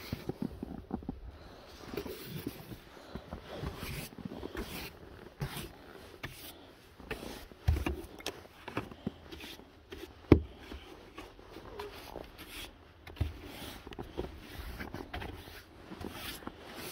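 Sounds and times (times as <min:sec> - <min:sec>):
snow brush scraping car windows: 0:03.5 - 0:08.0, 0:09.2 - 0:16.9.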